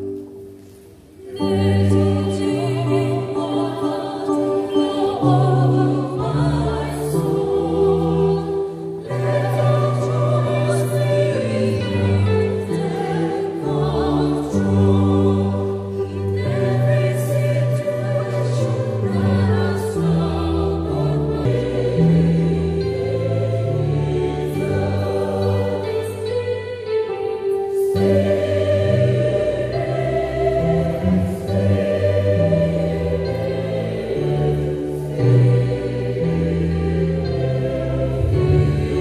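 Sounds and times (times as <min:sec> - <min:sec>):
choir singing a hymn: 0:01.1 - 0:39.0.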